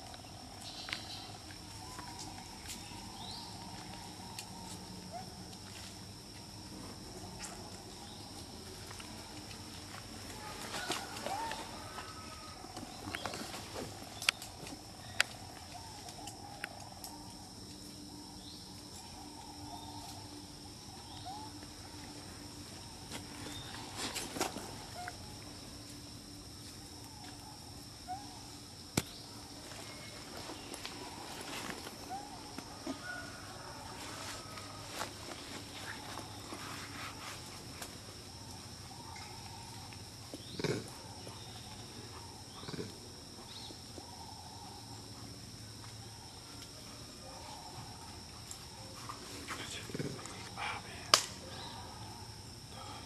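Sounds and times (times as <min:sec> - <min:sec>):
insect drone: 0:00.0 - 0:53.0.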